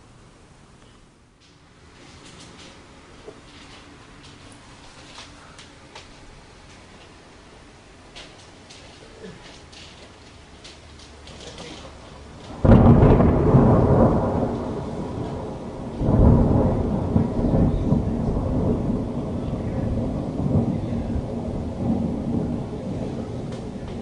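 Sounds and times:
thunder clap and rumble: 12.2s - 24.0s.

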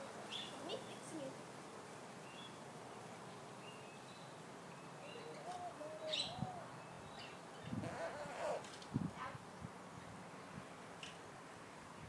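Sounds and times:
faint birds chirping: 0.0s - 8.8s.

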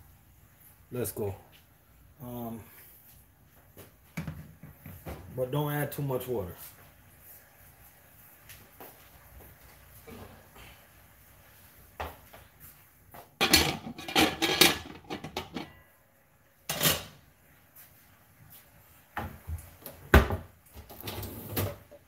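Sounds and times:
metal pots and pans clattering: 13.4s - 15.8s, 16.7s - 17.2s.

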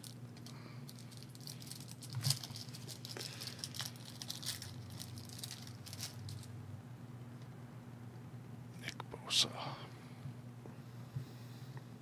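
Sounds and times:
wrapper crinkling and tearing: 0.0s - 6.5s.

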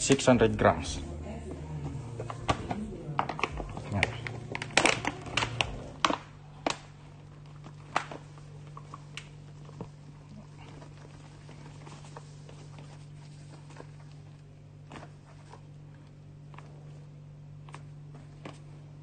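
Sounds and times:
steady low hum: 0.0s - 19.0s
paper bag crinkling: 3.2s - 14.4s.

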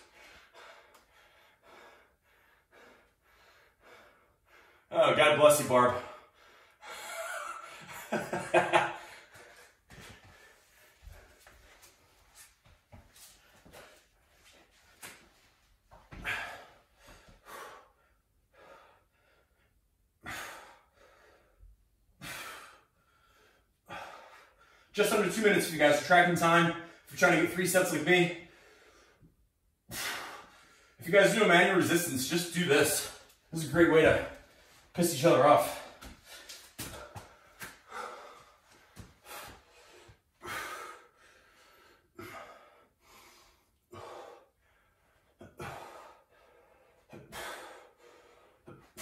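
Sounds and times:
person breathing hard: 0.0s - 4.9s, 6.0s - 8.2s, 8.8s - 15.2s, 16.1s - 24.9s, 28.3s - 31.0s, 34.2s - 49.0s.

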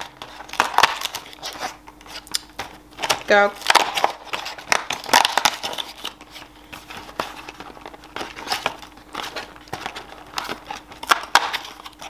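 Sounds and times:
cardboard and plastic crinkling: 0.0s - 12.0s.

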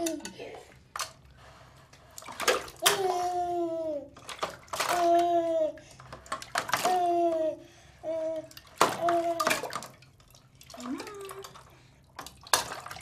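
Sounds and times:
water splashing: 8.5s - 13.0s.

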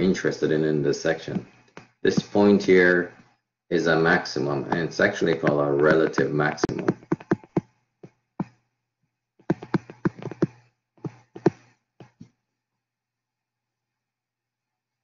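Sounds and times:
stylus tapping on tablet screen: 4.6s - 8.7s, 9.4s - 12.4s.

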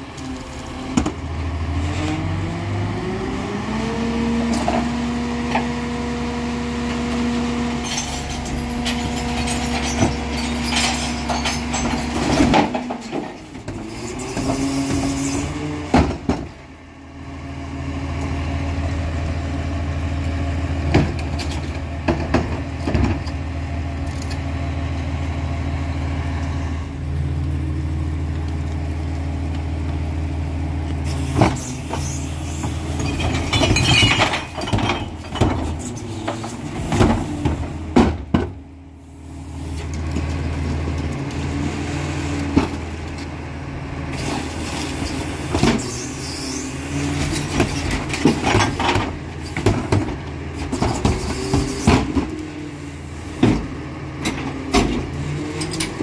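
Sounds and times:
diesel engine running: 0.0s - 56.0s
trash clattering into hopper: 7.7s - 16.6s, 32.6s - 38.6s, 47.0s - 52.6s.

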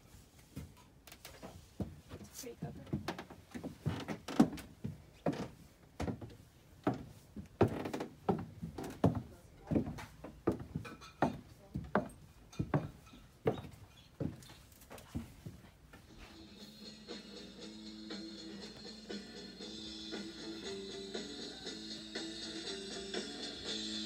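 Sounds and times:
footsteps on hard floor: 1.4s - 16.7s.

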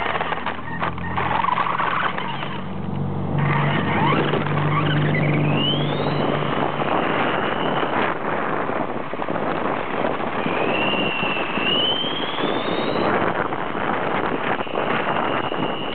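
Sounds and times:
electric motor and gear whine: 0.0s - 9.0s
tyres on rough asphalt: 0.0s - 15.9s.

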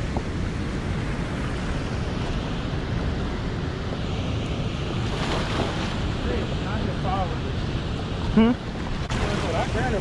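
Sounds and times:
wind buffeting microphone: 0.0s - 10.0s
water pouring off a spillway: 9.0s - 10.0s.

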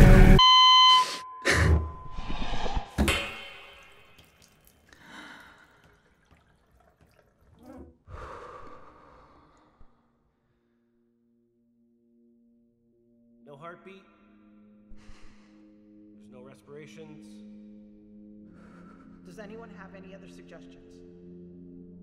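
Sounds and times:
water dripping in a shower: 3.5s - 7.9s
person gasping: 4.9s - 5.9s, 7.6s - 10.1s.

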